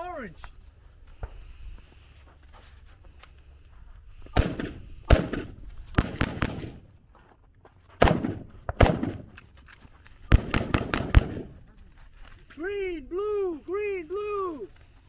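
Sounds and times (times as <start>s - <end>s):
rifle gunshots with echo: 4.3s - 6.9s, 8.0s - 9.4s, 10.3s - 11.6s.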